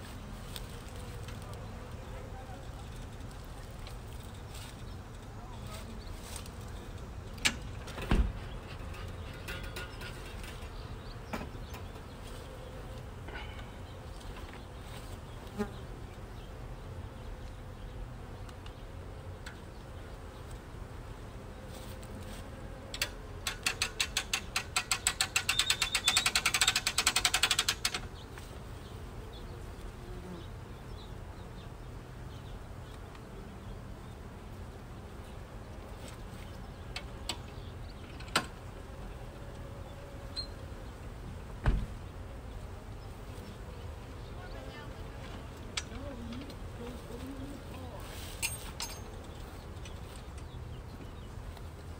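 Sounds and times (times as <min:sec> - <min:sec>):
honeybees buzzing: 0:00.0 - 0:51.9
winch ratcheting clatter: 0:23.5 - 0:28.0.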